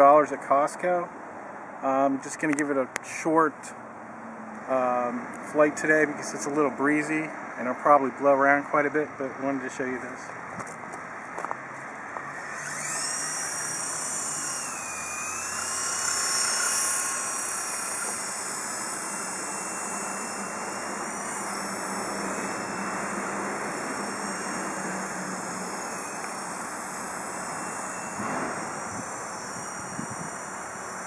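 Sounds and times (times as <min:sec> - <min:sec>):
toy helicopter motors whining: 0:12.1 - 0:31.0.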